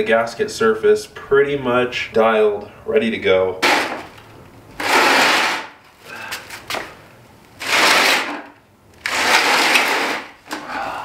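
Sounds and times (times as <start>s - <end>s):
wooden pallet scraping on concrete: 3.6s - 4.2s, 4.8s - 5.9s, 7.6s - 10.5s.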